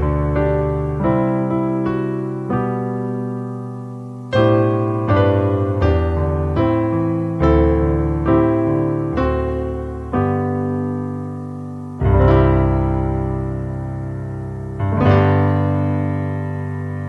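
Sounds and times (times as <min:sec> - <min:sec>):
electric keyboard playing slow chords: 0:00.0 - 0:17.0.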